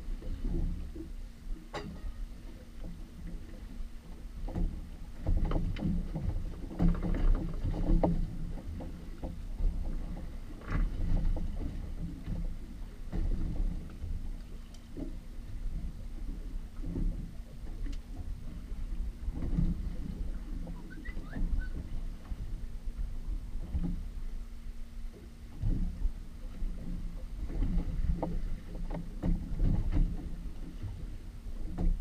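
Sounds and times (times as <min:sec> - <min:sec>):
faint steady hum: 0:00.0 - 0:32.0
steady low rumble: 0:00.0 - 0:32.0
water lapping against boat hull: 0:00.0 - 0:32.0
knocks and splashes: 0:04.4 - 0:22.6, 0:25.5 - 0:32.0.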